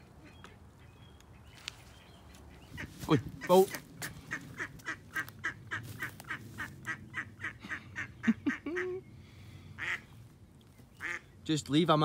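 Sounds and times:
duck quacking: 2.5s - 9.0s, 9.8s - 10.1s, 11.0s - 11.2s.

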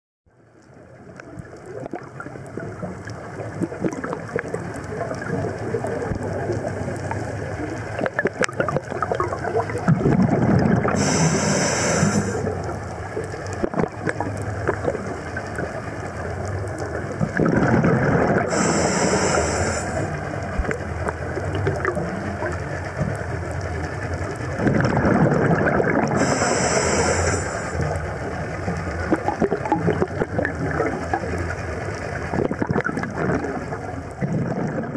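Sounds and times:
regulator bubbles gurgling: 0.4s - 34.9s
underwater crackling hiss: 1.8s - 23.4s, 24.2s - 33.7s.

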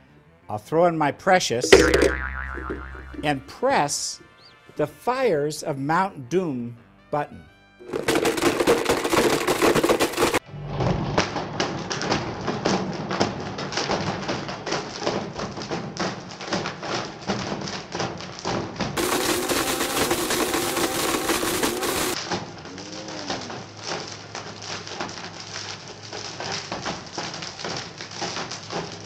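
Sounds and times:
phone fragments rattling in blender: 7.8s - 10.4s, 19.0s - 22.2s
blender motor running: 19.0s - 22.2s.

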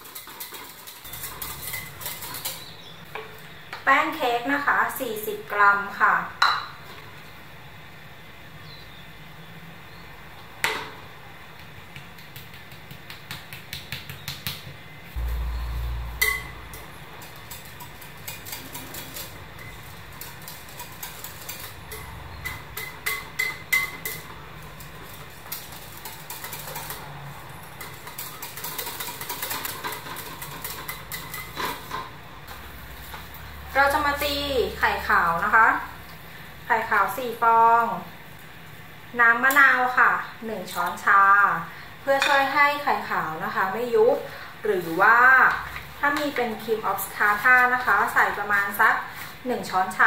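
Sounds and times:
whisk scraping glass bowl: 0.0s - 2.7s, 16.2s - 24.2s, 24.8s - 31.8s.

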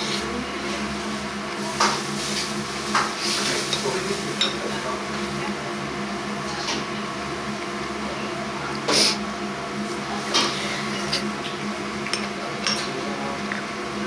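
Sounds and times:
dishes and tableware clinking: 12.1s - 13.0s.

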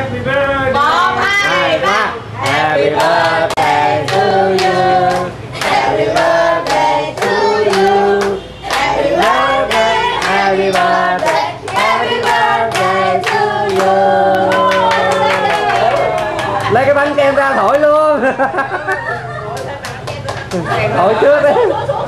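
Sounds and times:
group singing: 0.7s - 16.1s
people clapping: 2.4s - 17.4s, 18.8s - 20.9s.

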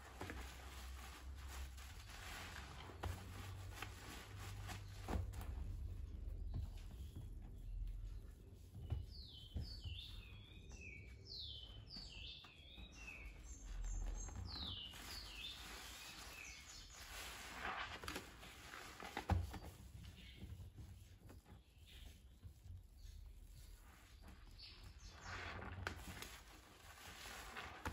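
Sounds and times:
sponges squelching in foamy water: 0.0s - 10.0s, 13.6s - 27.9s
bird chirping: 6.4s - 17.3s.

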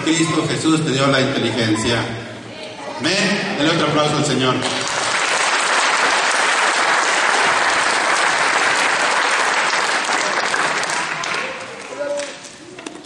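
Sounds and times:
congregation clapping: 4.5s - 12.6s.

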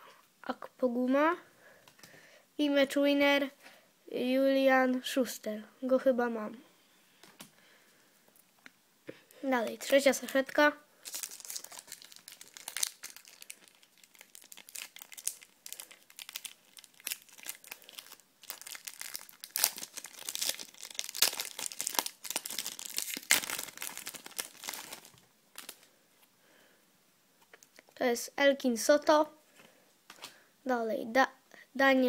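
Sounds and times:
foil wrapper crinkling and tearing: 11.0s - 25.9s.

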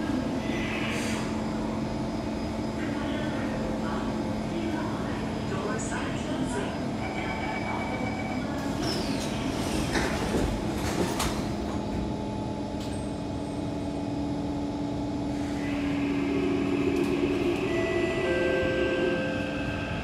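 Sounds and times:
steady hum of train equipment: 0.0s - 20.0s
train doors sliding shut: 8.6s - 12.1s
traction motors whining: 15.1s - 20.0s.

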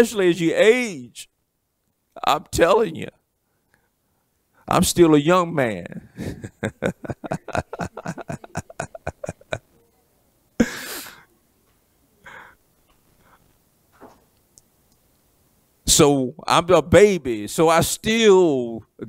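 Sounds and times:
man chuckling: 5.9s - 9.8s, 10.6s - 11.2s.

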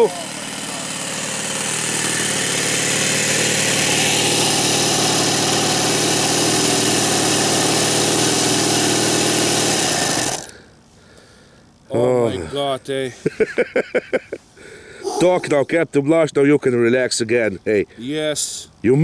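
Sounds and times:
model plane engine running: 0.0s - 10.6s.

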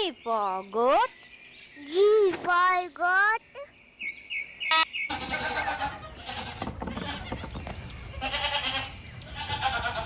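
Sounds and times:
goat kids bleating: 4.7s - 10.0s.

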